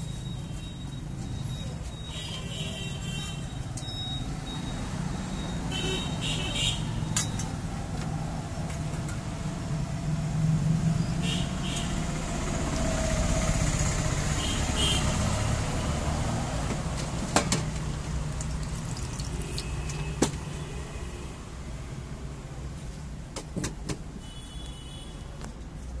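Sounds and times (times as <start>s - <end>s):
traffic engine rumble: 3.4s - 24.2s.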